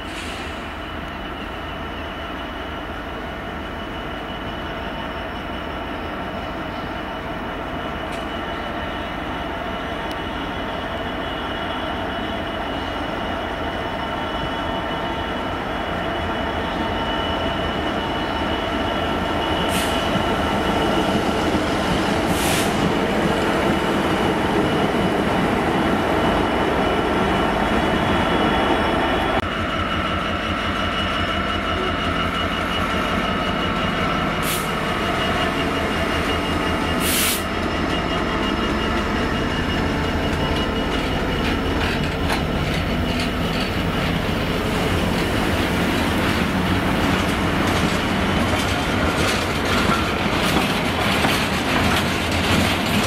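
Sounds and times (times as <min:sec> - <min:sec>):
diesel locomotive engine running: 0:00.0 - 0:53.0
high squeal from train wheels: 0:00.0 - 0:53.0
wheels clacking over rail joints: 0:37.5 - 0:53.0.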